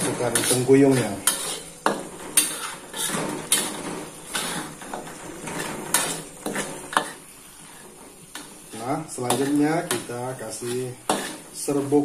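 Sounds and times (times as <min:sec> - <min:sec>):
utensil clanking against pot: 0:00.0 - 0:07.2, 0:11.0 - 0:11.5
utensil scraping in pot: 0:00.0 - 0:12.0.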